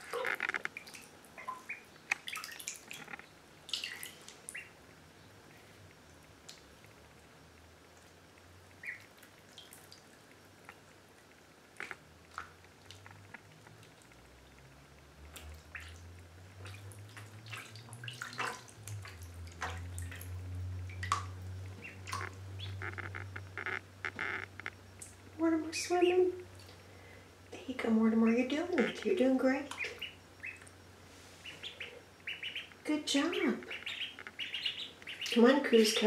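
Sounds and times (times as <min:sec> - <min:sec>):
ducklings splashing in water: 0:00.0 - 0:36.0
low steady hum: 0:00.0 - 0:36.0
duckling peeps: 0:01.4 - 0:02.5, 0:03.7 - 0:04.8, 0:08.8 - 0:09.2, 0:20.9 - 0:25.1, 0:28.3 - 0:30.8, 0:31.4 - 0:35.9.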